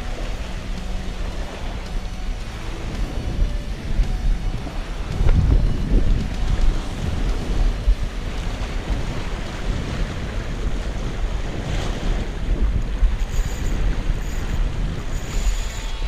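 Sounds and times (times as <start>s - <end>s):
waves breaking on rocks: 0.0s - 16.0s
wind buffeting microphone: 0.0s - 16.0s.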